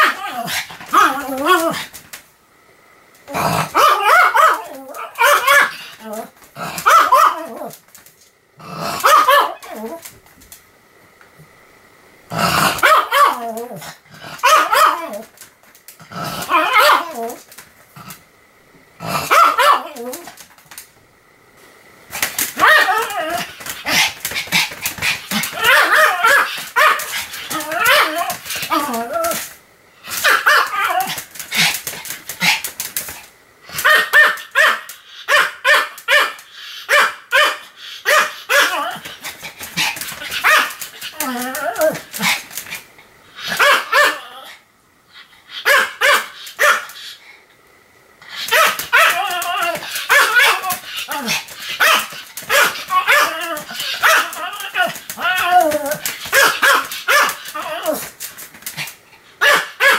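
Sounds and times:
dog barking: 3.8 - 5.7, 6.8 - 7.4, 9.0 - 9.6, 12.8 - 13.4, 19.3 - 19.9, 33.8 - 38.7, 43.6 - 44.3, 45.6 - 46.9, 56.3 - 57.4, 59.4 - 59.9.

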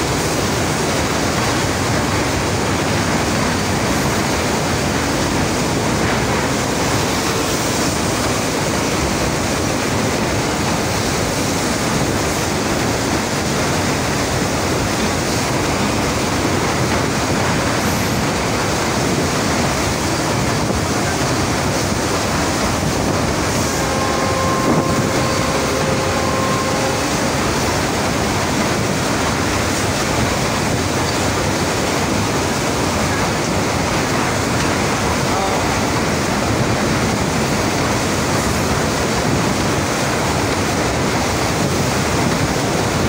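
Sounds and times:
river water rushing: 0.0 - 43.0
train running across bridge: 0.0 - 43.0
faint held tone: 23.8 - 27.1.

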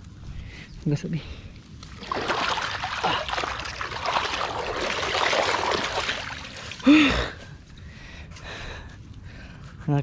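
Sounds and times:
bare feet splashing through mud: 1.8 - 7.2.

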